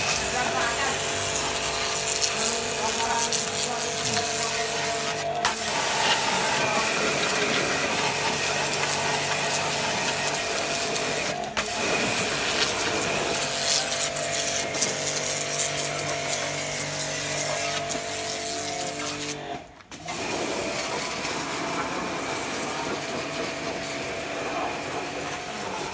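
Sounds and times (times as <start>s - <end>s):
high-pressure water jet hissing: 0.0s - 19.4s, 20.1s - 25.9s
pressure washer pump humming: 0.0s - 25.9s.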